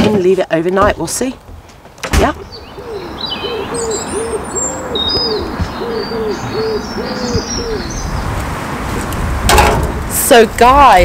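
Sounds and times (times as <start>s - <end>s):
songbirds chirping: 0.0s - 9.4s
pigeon cooing: 2.5s - 8.1s.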